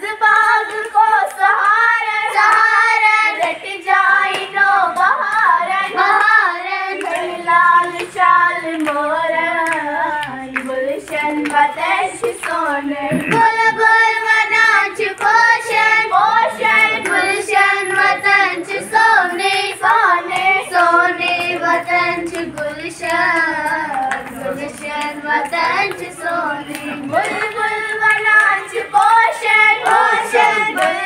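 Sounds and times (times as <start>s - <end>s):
girls singing folk song: 0.0s - 31.0s.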